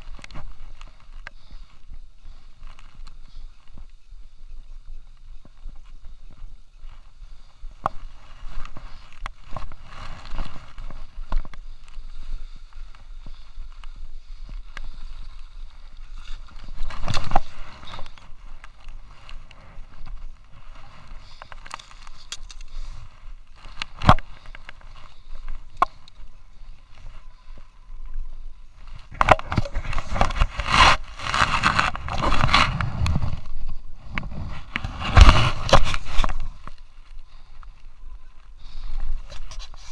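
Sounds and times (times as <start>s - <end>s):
skis scraping over snow: 5.1s - 11.8s, 15.0s - 27.8s, 28.6s - 37.5s.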